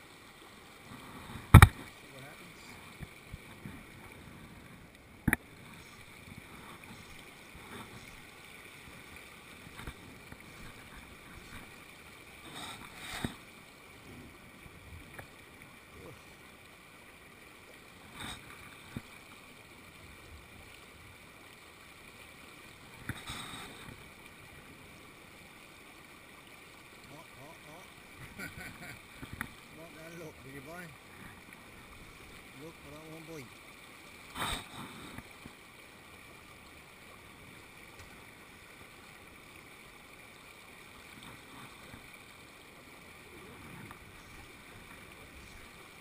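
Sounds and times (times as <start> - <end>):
river water flowing over rocks: 0.0 - 46.0
sharp clicks and knocks: 1.5 - 1.8.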